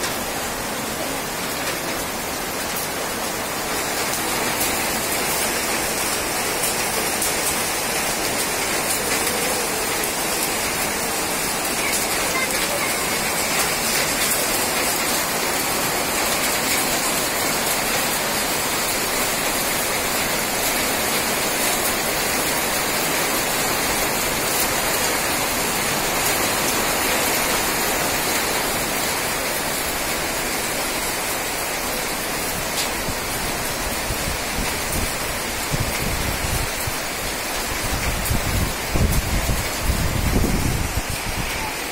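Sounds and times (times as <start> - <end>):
heavy rain pouring: 0.0 - 41.9
wind buffeting microphone: 33.0 - 41.9.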